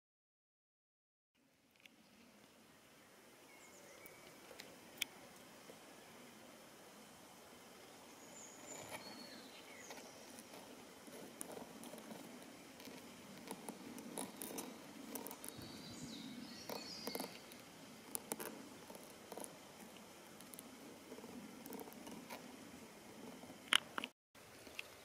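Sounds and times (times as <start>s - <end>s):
small clicks: 23.3s - 25.0s.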